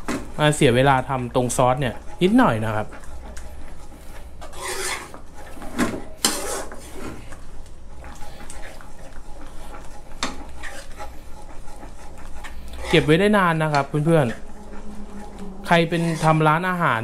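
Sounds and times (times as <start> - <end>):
metal spoon scraping a pan: 0.1 - 7.4, 8.0 - 17.0.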